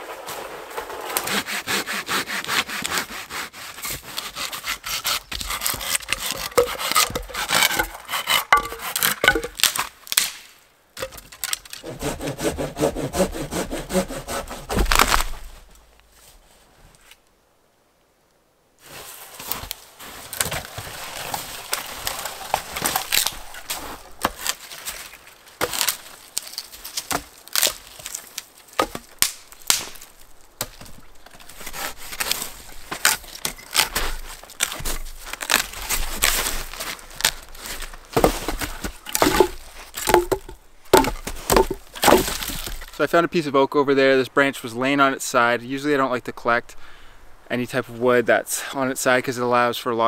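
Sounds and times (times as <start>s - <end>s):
wood cracking and snapping: 4.1s - 11.9s, 14.2s - 15.5s, 19.6s - 43.0s.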